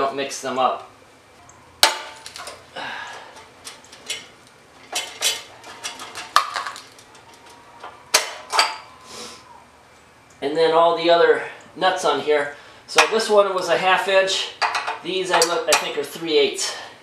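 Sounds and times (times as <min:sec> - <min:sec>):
wrench clinking on metal: 0:03.3 - 0:08.9.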